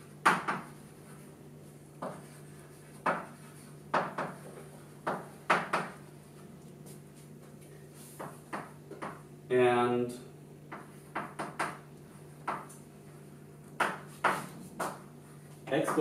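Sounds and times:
steady low hum: 0.0 - 16.0
chalk tapping on blackboard: 0.2 - 0.8, 2.0 - 6.0, 8.0 - 9.2, 10.7 - 12.8, 13.8 - 15.1.

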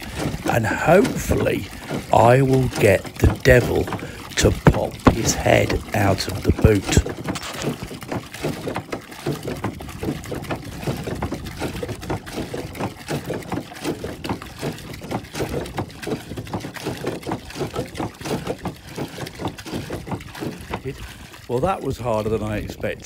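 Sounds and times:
water gushing into a trough: 0.0 - 23.0.

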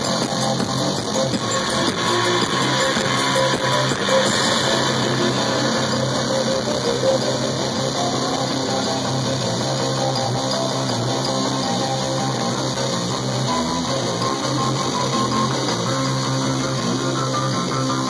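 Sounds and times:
bass-heavy plucked electric instrument: 0.0 - 18.0.

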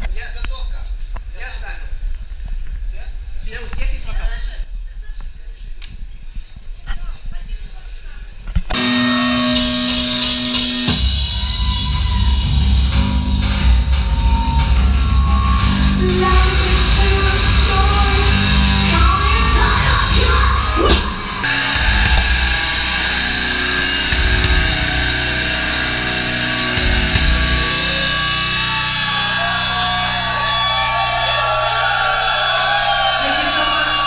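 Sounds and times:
low drone: 8.8 - 31.5
heavy metal music: 8.8 - 34.0
high ticking beat: 20.8 - 28.6.

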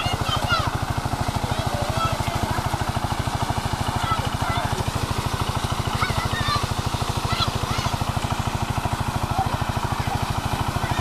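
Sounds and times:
diesel engine running: 0.0 - 11.0
water gushing: 0.0 - 11.0
children shouting: 5.8 - 8.2.

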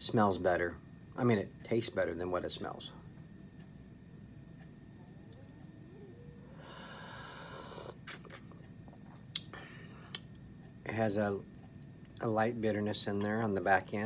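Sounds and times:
mouth clicks: 9.3 - 10.3.

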